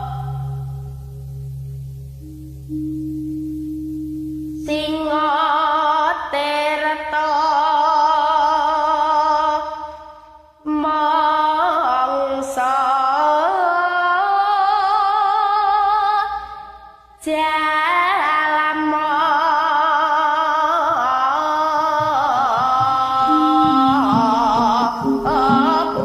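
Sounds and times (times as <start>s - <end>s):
girl singing: 0.0s - 0.9s, 4.6s - 26.0s.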